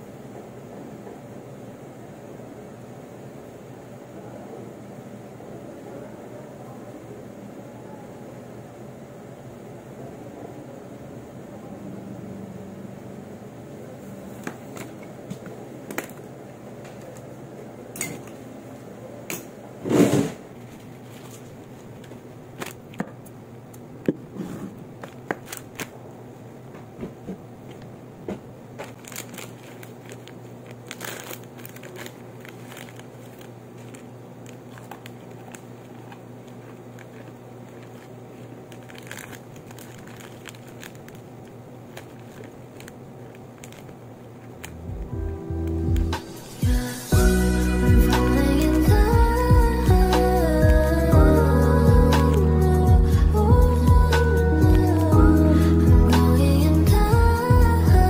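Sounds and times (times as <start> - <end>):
snack wrappers rustling: 20.5 - 23.4, 24.9 - 26.0, 27.6 - 47.1
low hum: 27.0 - 58.0.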